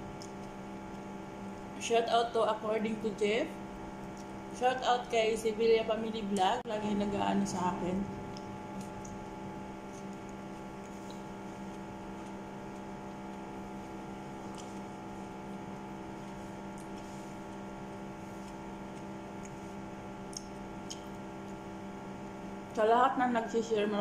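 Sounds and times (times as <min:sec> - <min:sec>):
soft chewing clicks: 0:00.0 - 0:01.7, 0:03.9 - 0:04.6, 0:08.2 - 0:22.9
steady electrical hum: 0:00.0 - 0:24.0.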